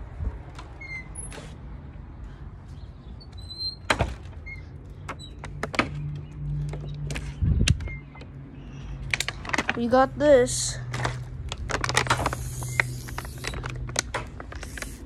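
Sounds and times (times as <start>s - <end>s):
sharp handling clicks and knocks: 3.3s - 8.4s, 9.0s - 9.9s.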